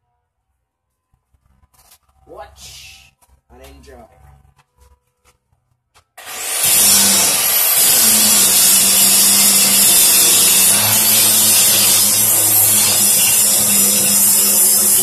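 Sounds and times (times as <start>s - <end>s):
angle grinder grinding metal: 6.2s - 15.0s.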